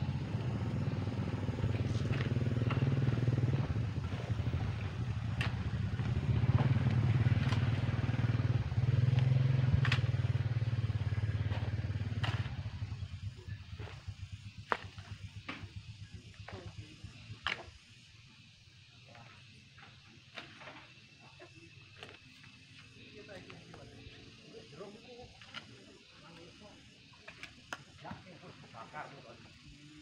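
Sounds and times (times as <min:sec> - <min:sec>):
engine low drone: 0:00.0 - 0:21.2.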